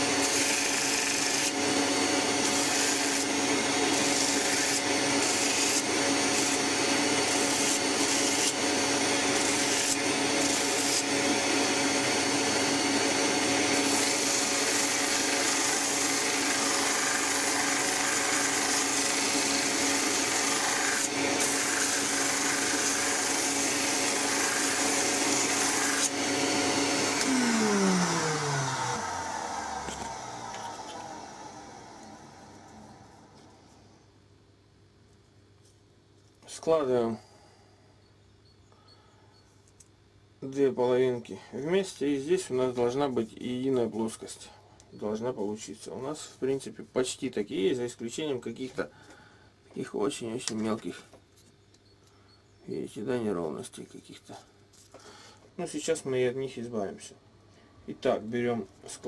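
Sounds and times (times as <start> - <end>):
wood grinding against wheel: 0.0 - 31.1
bench grinder motor hum: 0.0 - 33.9.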